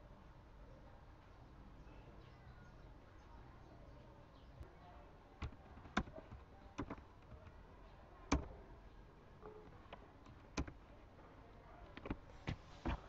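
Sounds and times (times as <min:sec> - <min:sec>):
computer mouse clicking: 0:05.4 - 0:07.6, 0:08.3 - 0:08.5, 0:09.9 - 0:10.8.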